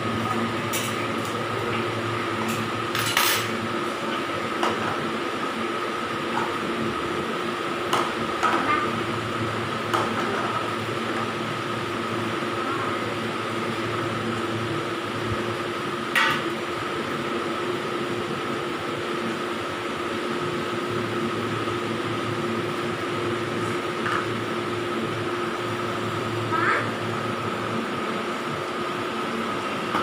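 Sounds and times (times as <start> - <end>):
machine hum with high whine: 0.0 - 30.0.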